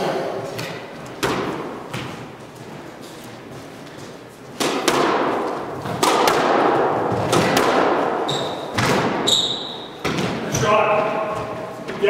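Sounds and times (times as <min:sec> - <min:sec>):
squash ball cracks: 0:00.6 - 0:02.1, 0:04.6 - 0:09.3
short high squeak: 0:09.3 - 0:09.9.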